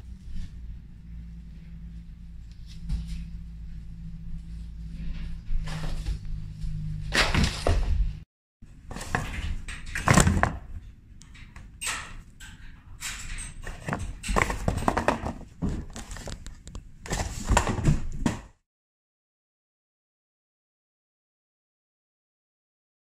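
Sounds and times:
cardboard and paper rustling: 13.6s - 18.3s.

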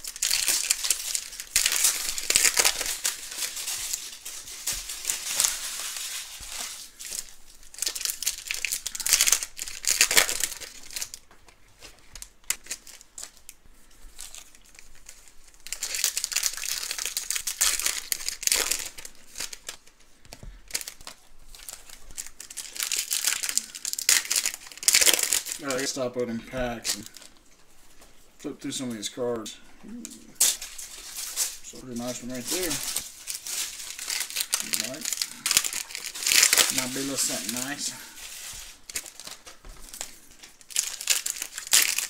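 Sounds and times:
card pack wrappers crinkling and tearing: 0.0s - 28.1s, 28.7s - 42.0s.

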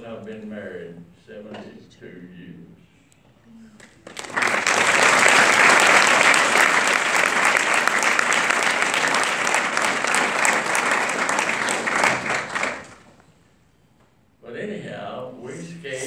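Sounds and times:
audience applauding: 3.8s - 13.2s.

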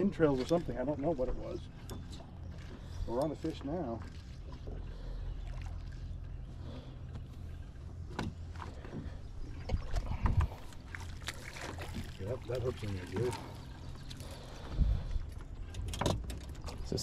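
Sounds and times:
steady low hum: 0.0s - 17.0s
knocks and thumps on boat: 8.0s - 10.6s.

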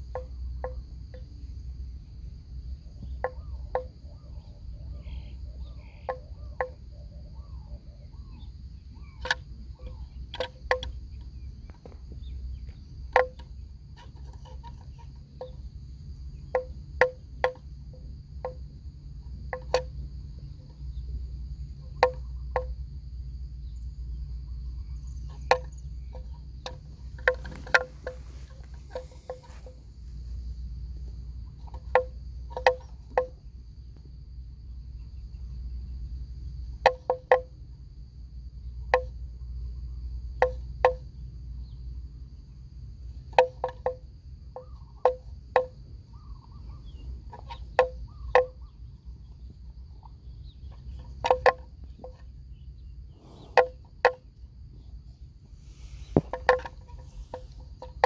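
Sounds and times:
high insect drone: 0.0s - 58.0s
buffaloes cropping grass snaps: 25.4s - 29.9s.

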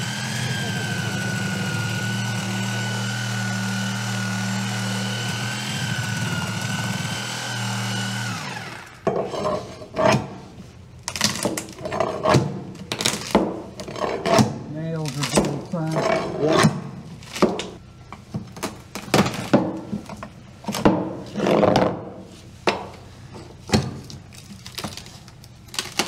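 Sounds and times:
reciprocating saw cutting wood: 0.0s - 10.4s.

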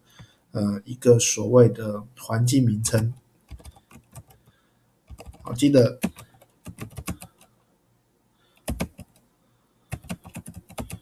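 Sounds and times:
typing on computer keyboard: 3.5s - 4.5s, 5.1s - 7.5s, 8.6s - 9.2s, 9.9s - 11.0s.

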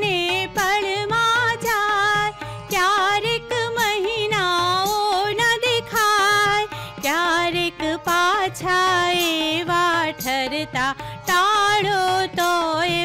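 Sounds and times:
harmonium: 0.0s - 13.0s
tabla beat: 0.0s - 13.0s
woman singing: 0.0s - 13.0s.

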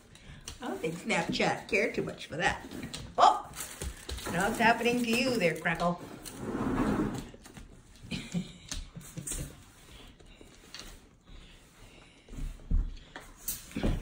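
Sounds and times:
paws scuffling on wooden floor: 0.0s - 6.4s.

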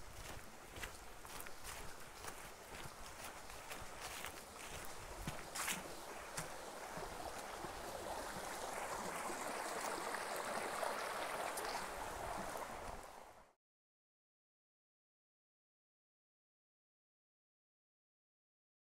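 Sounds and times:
footsteps on wooden boardwalk: 0.0s - 7.9s
stream running over rocks: 0.0s - 13.6s.

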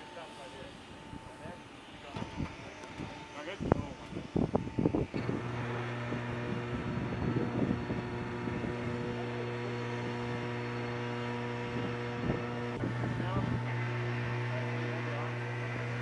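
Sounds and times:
machinery hum: 0.0s - 16.0s.

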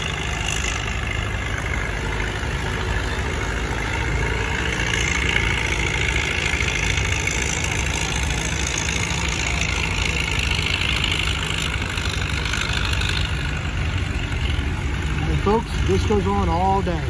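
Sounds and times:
tractor diesel engine drone: 0.0s - 17.0s.

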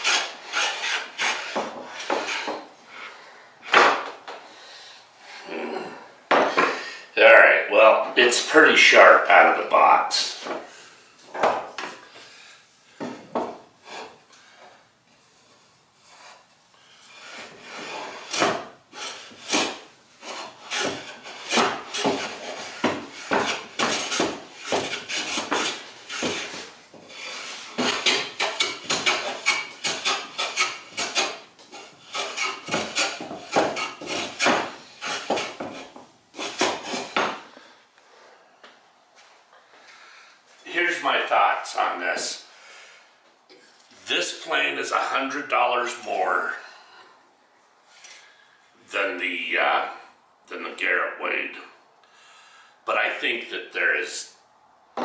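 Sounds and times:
hand plane scraping wood: 0.0s - 2.7s, 15.4s - 37.5s.

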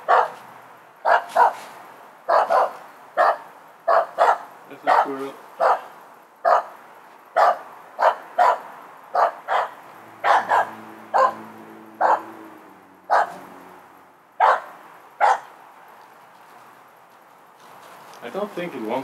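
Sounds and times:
dog barking: 0.0s - 0.4s, 1.0s - 1.7s, 2.3s - 6.8s, 7.4s - 12.4s, 13.1s - 13.5s, 14.4s - 15.5s.

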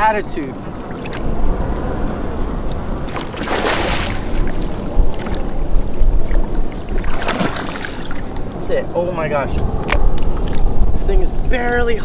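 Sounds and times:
steady low rumble: 0.0s - 12.0s
fish splashing at the surface: 3.1s - 5.6s, 6.2s - 8.3s
loud splash: 3.1s - 5.6s, 6.2s - 8.2s.

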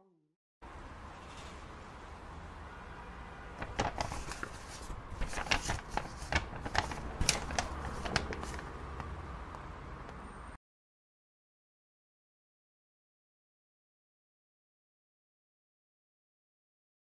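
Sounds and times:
paper rustling: 3.6s - 8.7s.

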